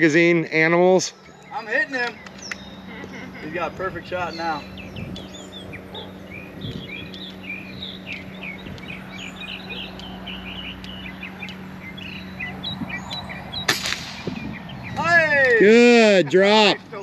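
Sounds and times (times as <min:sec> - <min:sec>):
small birds chirping: 0:00.0 - 0:17.0
steady low hum: 0:00.0 - 0:17.0
rifle shot: 0:13.7 - 0:14.3.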